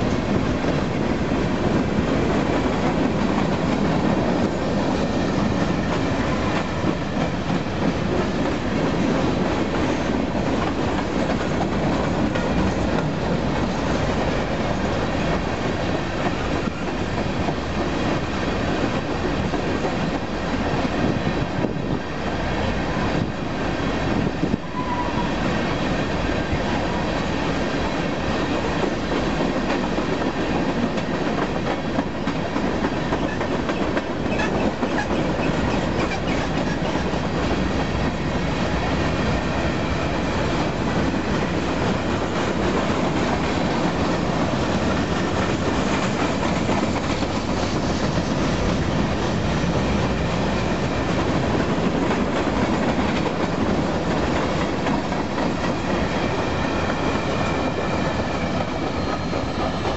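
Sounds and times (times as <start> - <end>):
train cars rumbling past: 0.0 - 59.9
steel wheels clattering on rails: 24.2 - 59.9.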